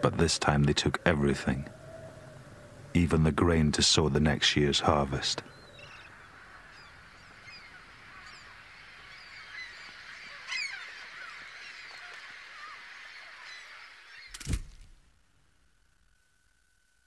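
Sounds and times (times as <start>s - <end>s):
flock of birds honking and chirping: 0.0s - 14.4s
steady background hiss: 0.0s - 17.0s
sudden thump: 14.4s - 15.0s.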